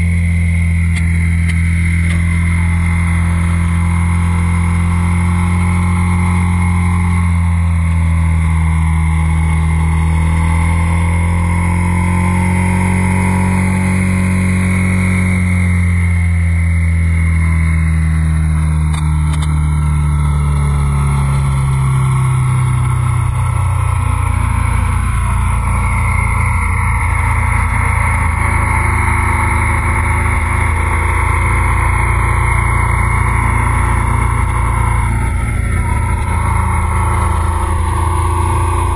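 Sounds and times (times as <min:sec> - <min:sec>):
motorcycle engine running: 0:00.0 - 0:38.9.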